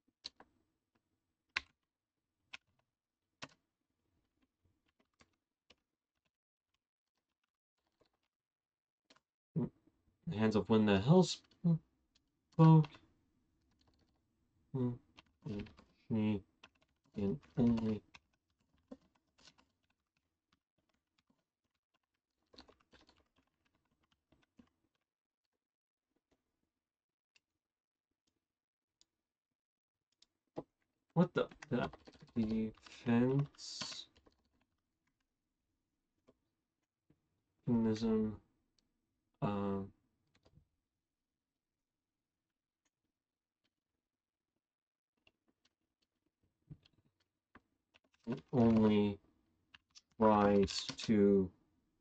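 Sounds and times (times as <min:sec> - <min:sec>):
faint computer keyboard typing: 0:15.1 - 0:20.0, 0:31.2 - 0:35.2, 0:47.9 - 0:48.9.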